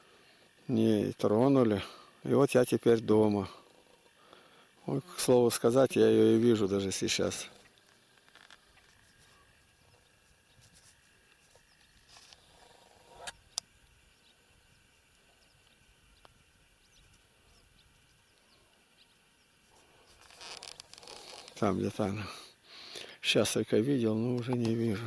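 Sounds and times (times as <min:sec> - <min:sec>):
faint chirps: 0:07.2 - 0:23.0.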